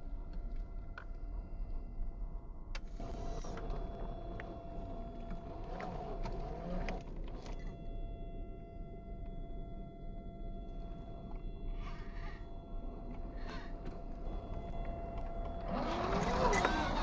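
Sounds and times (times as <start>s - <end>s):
electric motor whining: 11.8s - 17.0s.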